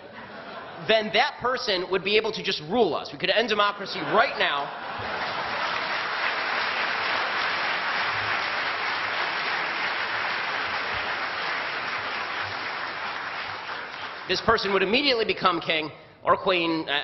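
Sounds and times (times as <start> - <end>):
audience applauding: 4.1 - 14.8.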